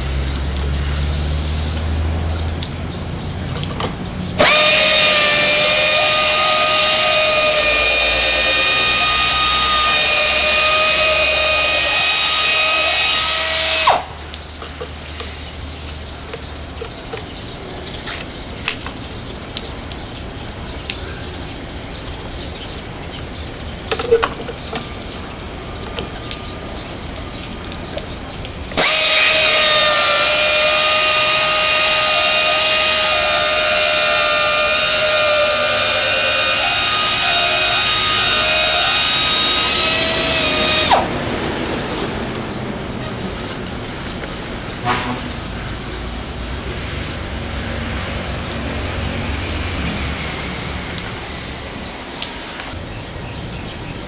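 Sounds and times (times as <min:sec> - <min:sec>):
pneumatic polisher whining: 0:04.4 - 0:14.1, 0:28.8 - 0:41.2.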